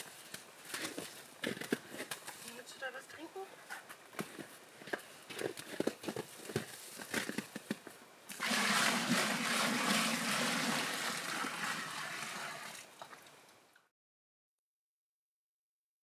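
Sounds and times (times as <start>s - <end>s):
light clicks and crunches: 0.0s - 2.7s, 3.6s - 8.0s
water poured from plastic bucket: 8.3s - 13.3s.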